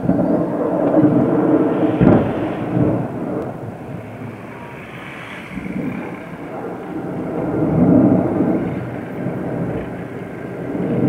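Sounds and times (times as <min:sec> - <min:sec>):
sharp explosion boom: 0:00.0 - 0:04.8
rumble of distant explosions: 0:00.0 - 0:11.0.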